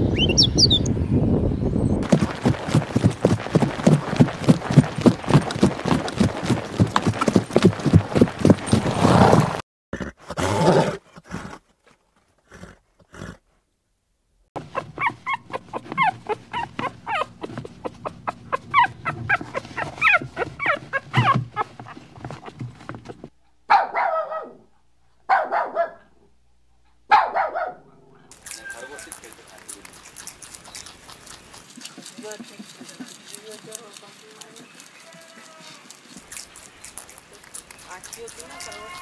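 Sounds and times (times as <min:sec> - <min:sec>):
horse snorting: 0:02.0 - 0:11.7, 0:12.4 - 0:13.4, 0:14.6 - 0:23.3, 0:28.3 - 0:39.0
puppy barking: 0:14.6 - 0:21.7, 0:23.7 - 0:24.6, 0:25.3 - 0:26.1, 0:27.1 - 0:31.5
puppy yipping and whining: 0:14.6 - 0:21.8.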